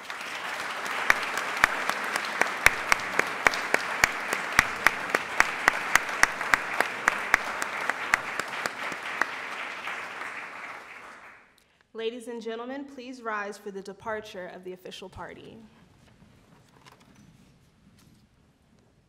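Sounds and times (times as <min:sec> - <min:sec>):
sharp nearby hand clapping: 0:00.0 - 0:11.4
audience applauding: 0:00.0 - 0:11.5.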